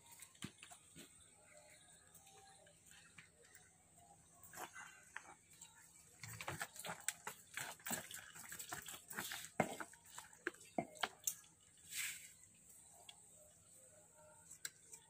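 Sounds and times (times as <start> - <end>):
water splashing in a trough: 6.2 - 11.4.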